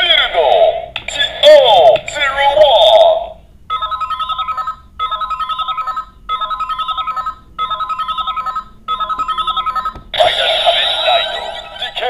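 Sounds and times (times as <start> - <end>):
toy trilling beep: 3.7 - 11.0.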